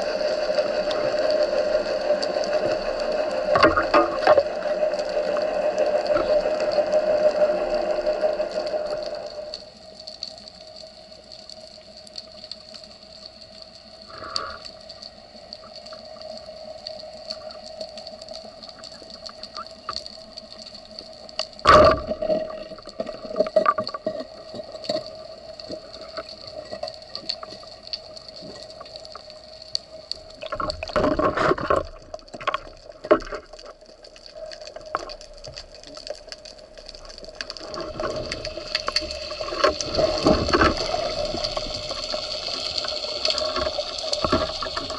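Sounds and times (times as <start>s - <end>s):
rushing water noise: 0.0s - 9.7s, 21.6s - 44.9s
steady underwater hum: 0.0s - 44.9s.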